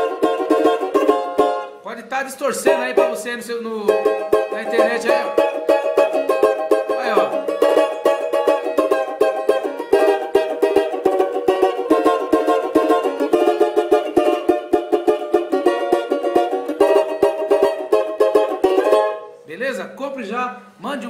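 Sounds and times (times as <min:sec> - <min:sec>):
banjo strummed hard: 0:00.0 - 0:01.8, 0:02.6 - 0:19.4.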